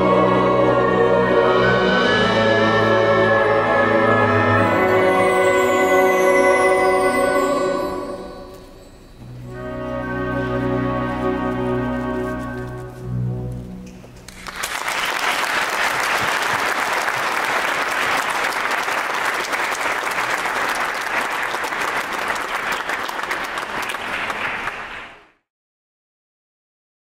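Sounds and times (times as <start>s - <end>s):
choir and orchestra chord: 0.0s - 13.8s
audience applause: 14.3s - 25.4s.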